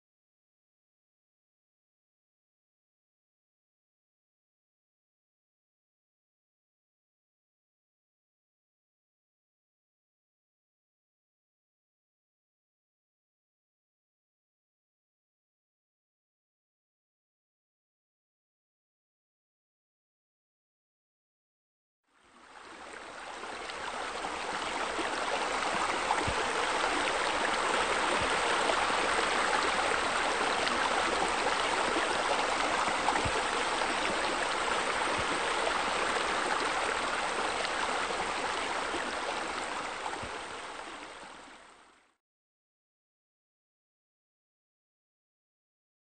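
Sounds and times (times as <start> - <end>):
flowing water rushing: 22.2 - 42.1.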